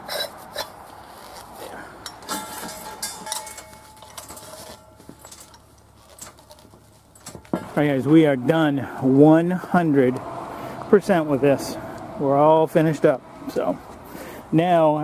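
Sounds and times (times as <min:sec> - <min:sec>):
metal cylinder clinks and knocks: 0:02.0 - 0:05.6.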